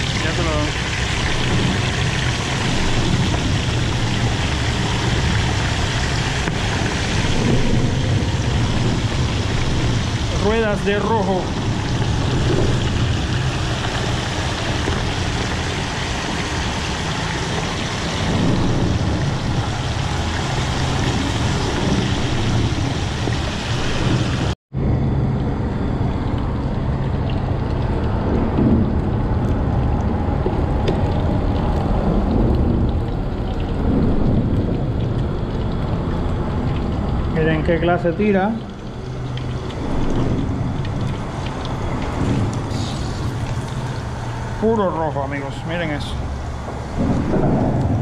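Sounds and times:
fish sizzling in hot oil: 0.0s - 24.5s, 32.9s - 44.9s
low rumble of stove: 0.0s - 48.0s.

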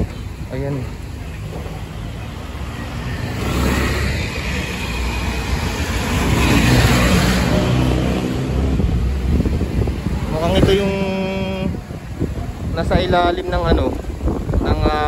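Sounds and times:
street traffic: 0.0s - 15.0s
vehicle engine passing close: 1.5s - 10.3s.

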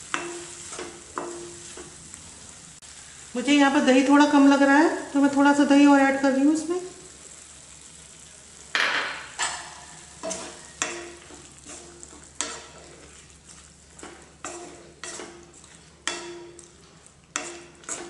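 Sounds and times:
low sizzle of frying: 0.0s - 18.0s
wooden spatula scraping pan: 10.2s - 18.0s.

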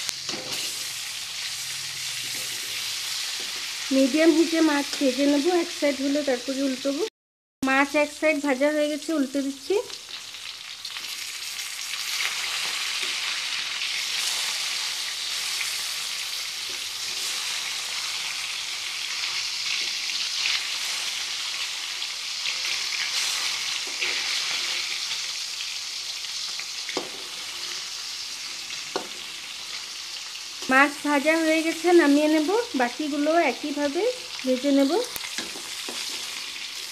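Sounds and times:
fish sizzling in oil: 0.0s - 36.9s
metal spatula scraping pan: 0.2s - 1.0s, 22.4s - 25.0s.

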